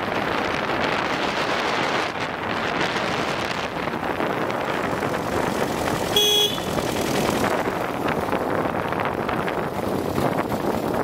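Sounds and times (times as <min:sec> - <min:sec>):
wind rush on microphone: 0:00.0 - 0:11.0
motorcycle diesel engine running: 0:03.8 - 0:11.0
short horn beep: 0:06.1 - 0:06.8.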